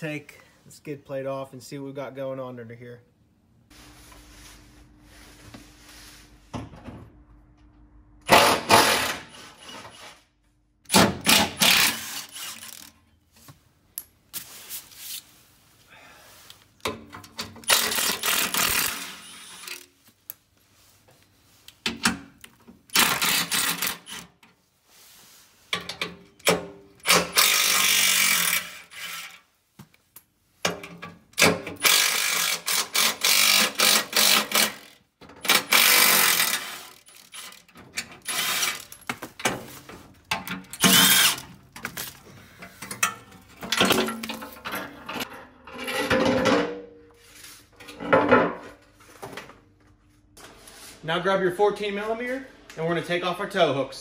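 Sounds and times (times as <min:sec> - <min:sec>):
impact wrench bursts: 0:08.3 - 0:09.4, 0:10.9 - 0:12.9, 0:17.6 - 0:19.8, 0:22.9 - 0:24.3, 0:26.4 - 0:29.4, 0:31.4 - 0:39.0, 0:40.8 - 0:41.5.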